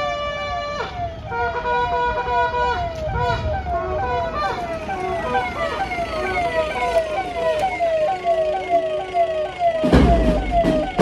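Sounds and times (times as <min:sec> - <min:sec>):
police siren sweeping: 0:00.0 - 0:11.0
steady siren tone: 0:00.0 - 0:11.0.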